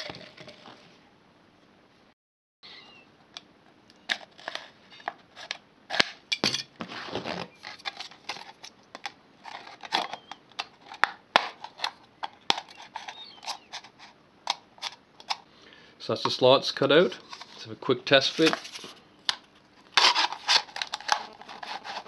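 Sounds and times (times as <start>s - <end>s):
plastic crackling: 17.2s - 22.0s
scissors cutting plastic bottle: 19.9s - 22.0s.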